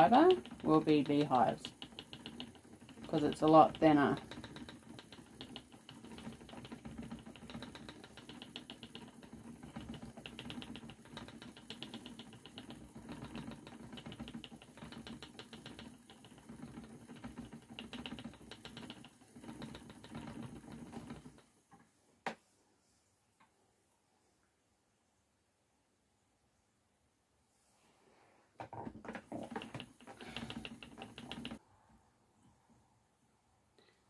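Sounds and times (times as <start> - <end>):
spinning wheel humming and clicking: 0.0 - 21.5, 29.2 - 31.6.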